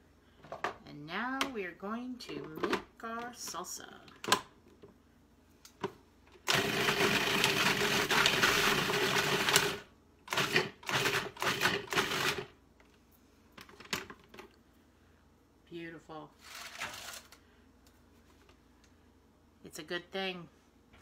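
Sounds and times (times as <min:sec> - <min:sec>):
food processor chopping: 0:06.5 - 0:12.5.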